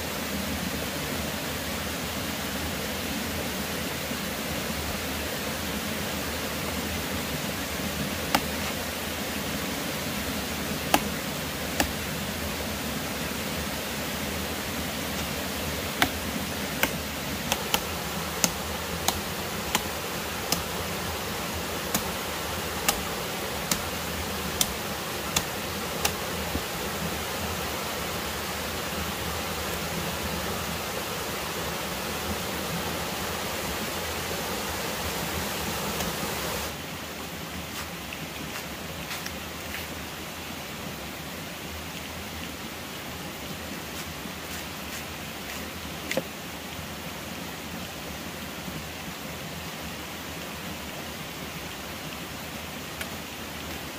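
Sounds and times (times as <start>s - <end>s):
rushing stream water: 0.0s - 53.9s
machete chopping bamboo: 8.3s - 8.7s, 10.8s - 12.1s, 15.1s - 26.7s.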